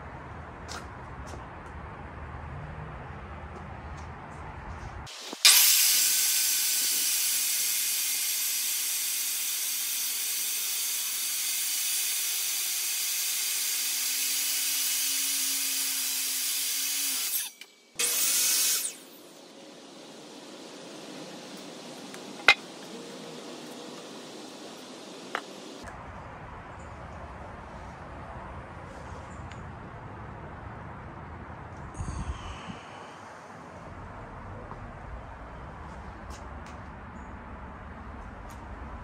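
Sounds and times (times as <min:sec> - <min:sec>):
miter saw cutting wood: 0:05.1 - 0:25.8.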